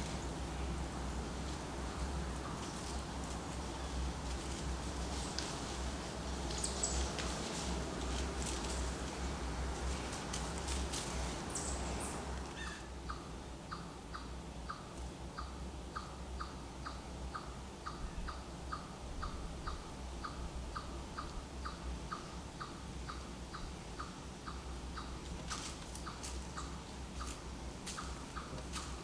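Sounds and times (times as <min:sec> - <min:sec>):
rustle: 0:00.0 - 0:29.0.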